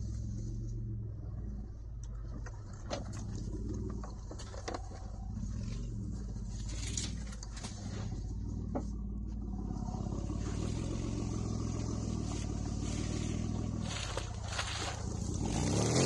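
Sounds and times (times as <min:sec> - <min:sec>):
car engine running at low speed: 0:00.0 - 0:16.0
tires rolling over dirt and mud: 0:00.0 - 0:16.0.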